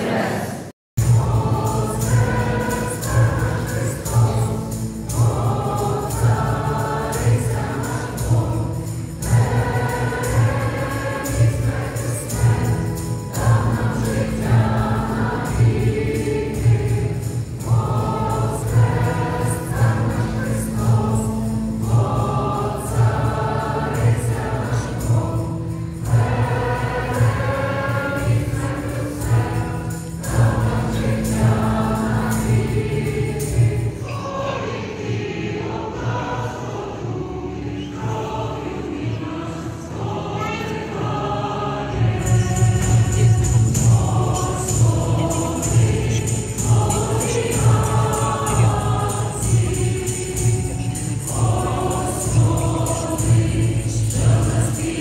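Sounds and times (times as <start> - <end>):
choir singing a hymn: 0.0 - 55.0.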